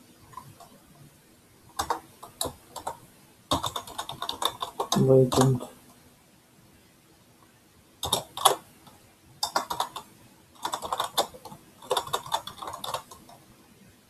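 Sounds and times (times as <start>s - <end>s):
keyboard typing: 0.3s - 0.8s, 1.7s - 5.7s, 8.0s - 13.4s.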